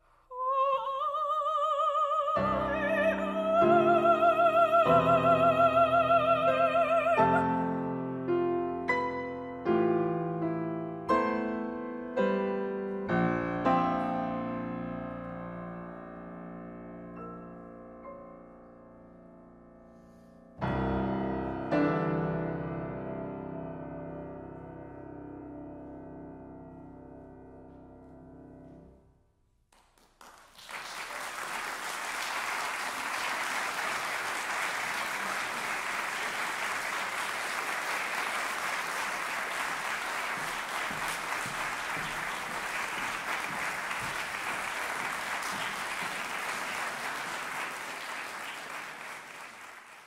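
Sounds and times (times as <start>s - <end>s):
audience applause: 29.8s - 50.0s.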